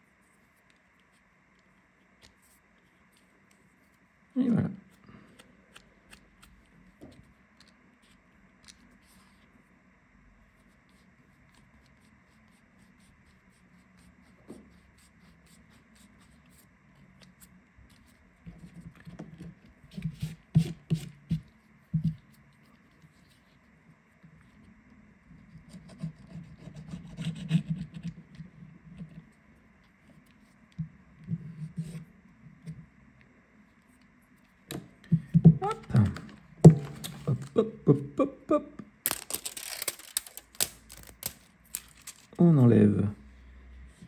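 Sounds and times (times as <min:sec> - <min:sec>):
tools scratching and rubbing phone: 0:00.0 - 0:04.1, 0:10.4 - 0:32.8.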